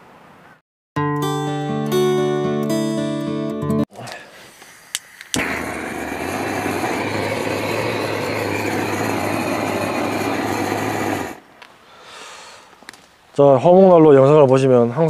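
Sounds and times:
torch flame hissing: 0:04.4 - 0:11.4
gas torch igniter clicks: 0:04.9 - 0:11.4.

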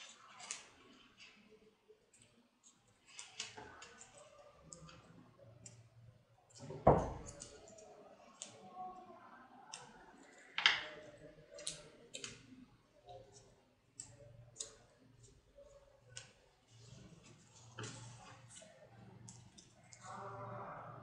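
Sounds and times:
paper rustling and clicking: 0:00.0 - 0:01.5, 0:02.1 - 0:05.1, 0:16.1 - 0:20.1
knock: 0:06.8 - 0:07.2.

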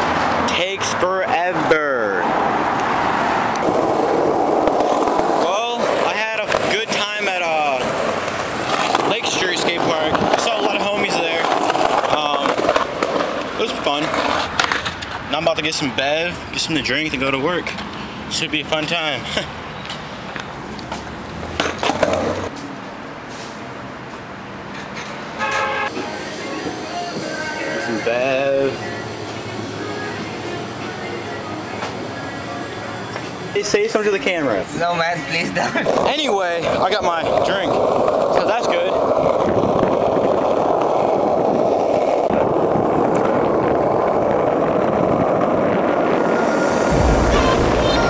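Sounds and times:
skateboard wheels rolling on pavement: 0:00.0 - 0:19.2, 0:19.8 - 0:48.0
skateboard clacks: 0:04.6 - 0:07.0, 0:07.8 - 0:15.2, 0:21.5 - 0:22.5, 0:35.8 - 0:44.4.

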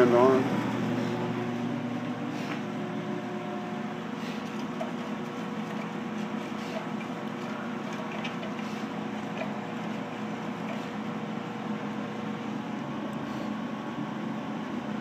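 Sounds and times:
wood stove rumbling: 0:04.1 - 0:13.5.

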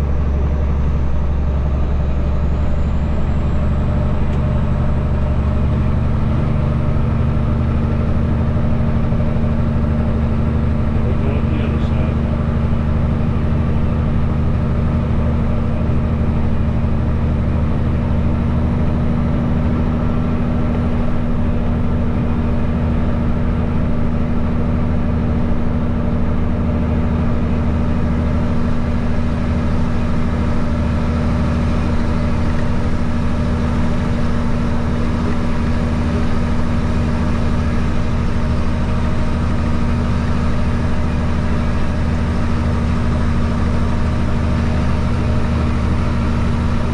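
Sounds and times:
truck diesel engine running: 0:00.0 - 0:46.9.

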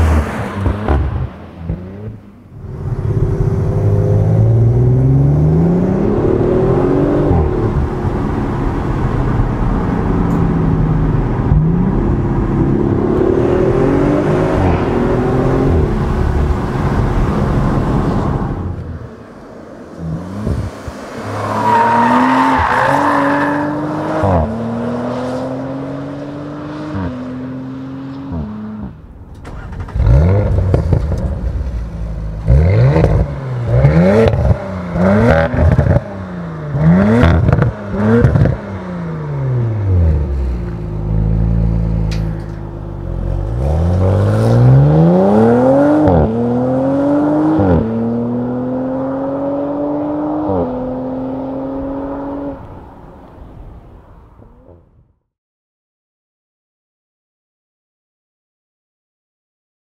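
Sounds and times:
engine revving: 0:11.4 - 0:17.1, 0:29.5 - 0:31.2, 0:32.4 - 0:42.2, 0:43.2 - 0:52.6.

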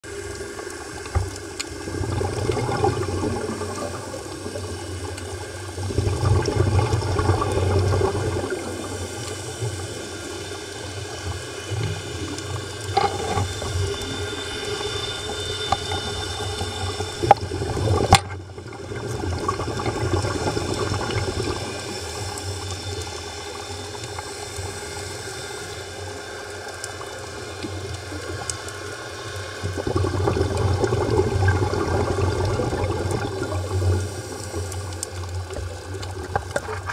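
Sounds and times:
diver exhaling bubbles underwater: 0:01.8 - 0:05.0, 0:05.8 - 0:09.3, 0:15.0 - 0:22.0, 0:29.6 - 0:34.2.

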